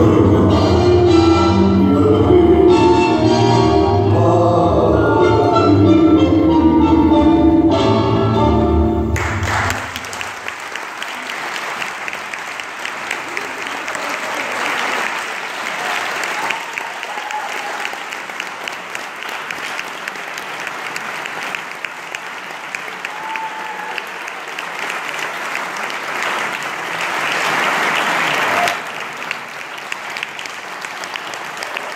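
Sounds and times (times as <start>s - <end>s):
audience applauding: 9.2s - 31.9s.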